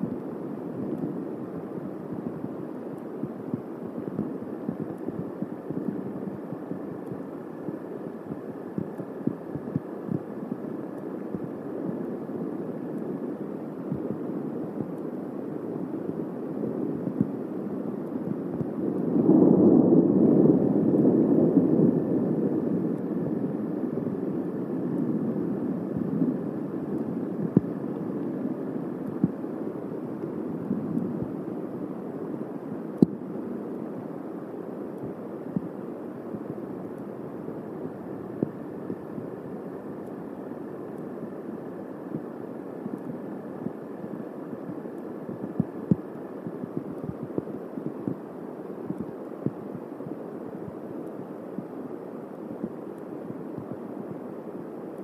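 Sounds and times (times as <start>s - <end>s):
rain and wind rush: 0.0s - 55.0s
thunder rolling: 18.6s - 24.1s
small ticks: 48.8s - 50.2s.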